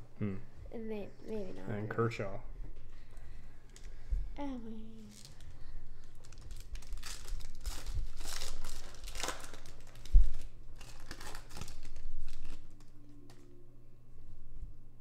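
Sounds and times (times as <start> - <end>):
foil wrapper crinkling and tearing: 5.1 - 13.4.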